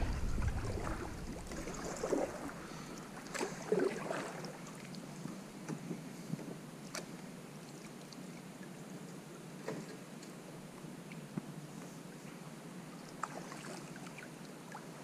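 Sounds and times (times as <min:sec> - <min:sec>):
paddle blades splashing water: 0:00.0 - 0:05.8, 0:13.2 - 0:15.0.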